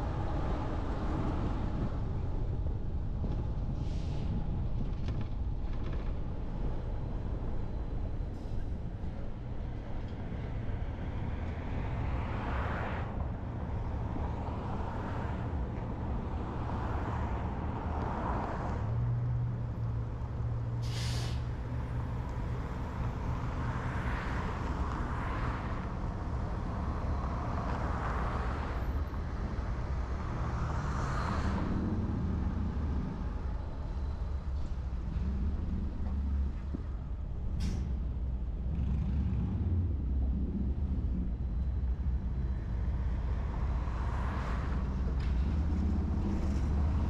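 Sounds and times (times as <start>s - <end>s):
car road rumble: 0.0s - 47.0s
vehicles passing: 0.0s - 47.0s
short sharp hiss: 20.8s - 21.4s.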